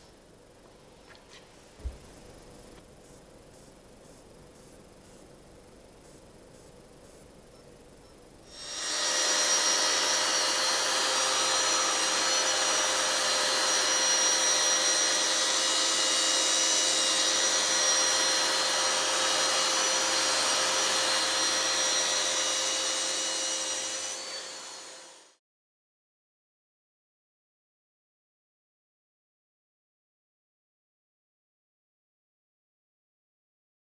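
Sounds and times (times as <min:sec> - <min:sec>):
electric sander whining: 0:08.5 - 0:25.4.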